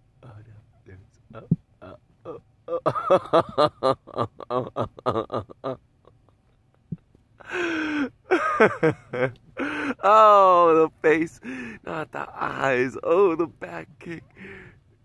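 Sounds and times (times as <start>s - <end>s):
person giggling: 1.8s - 10.0s.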